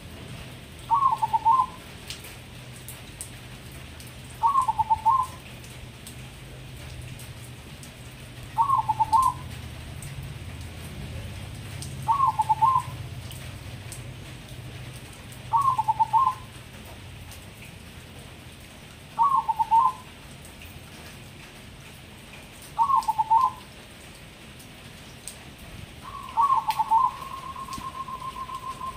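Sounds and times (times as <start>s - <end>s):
dove cooing: 0.9s - 1.8s, 4.4s - 5.4s, 8.6s - 9.5s, 12.0s - 13.0s, 15.5s - 16.5s, 19.2s - 20.1s, 22.8s - 23.6s, 26.0s - 28.9s.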